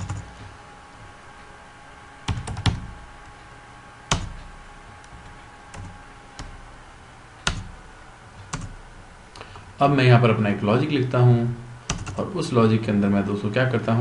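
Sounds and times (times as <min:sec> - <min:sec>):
computer keyboard key taps: 0:11.9 - 0:12.2.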